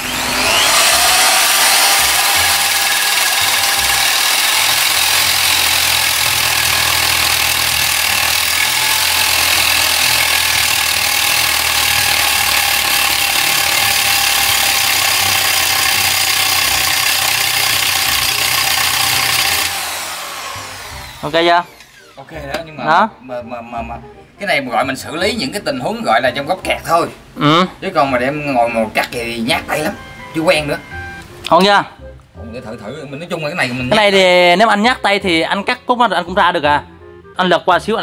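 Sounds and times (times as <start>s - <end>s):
cutting disc grinding iron bar: 0.0s - 22.7s.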